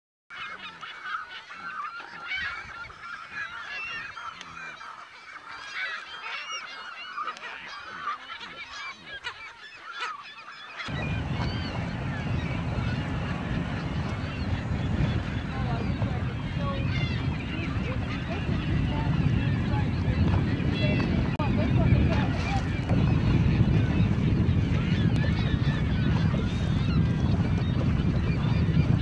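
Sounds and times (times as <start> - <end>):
pelicans and gulls calling: 0.3 - 29.0
steady low rumble: 10.9 - 29.0.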